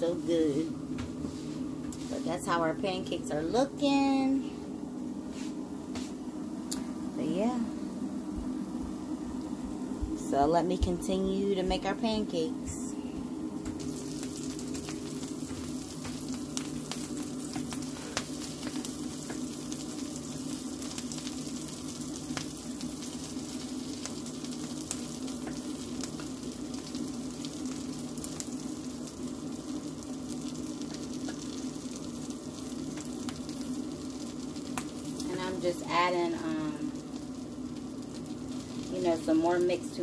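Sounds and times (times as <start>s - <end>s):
air fryer humming: 0.0s - 40.0s
butter sizzling in a pan: 13.5s - 40.0s.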